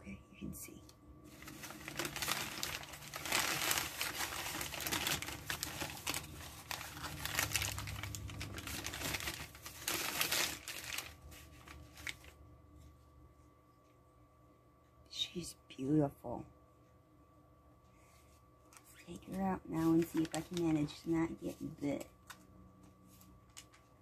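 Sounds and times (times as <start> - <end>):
paper crinkling and rustling: 1.3 - 13.0, 18.1 - 24.0.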